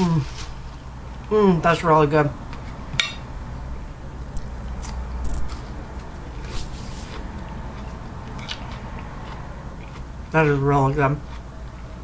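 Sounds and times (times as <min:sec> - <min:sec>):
steady low hum: 0:00.0 - 0:12.0
person chewing food: 0:04.2 - 0:10.4, 0:11.2 - 0:12.0.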